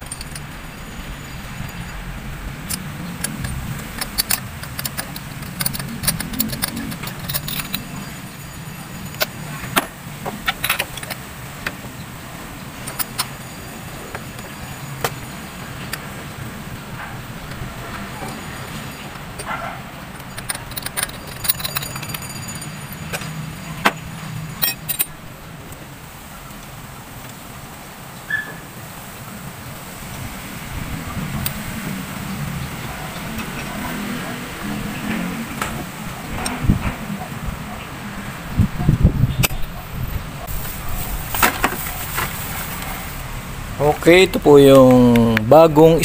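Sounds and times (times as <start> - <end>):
metal tools clinking: 0.0 - 25.3, 40.4 - 46.0.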